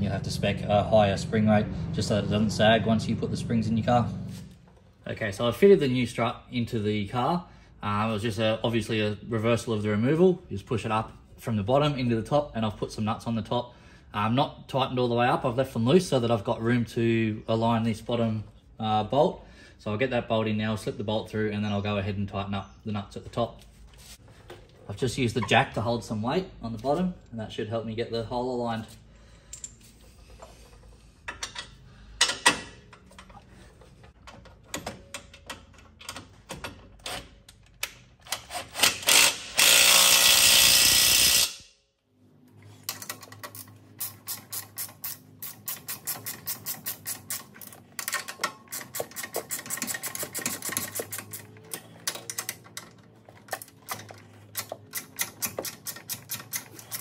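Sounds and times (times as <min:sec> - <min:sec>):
hand ratchet clicking: 0:38.2 - 0:41.6, 0:42.9 - 0:57.0
power tool burst: 0:38.9 - 0:41.7
metal clicks and knocks: 0:47.3 - 0:57.0.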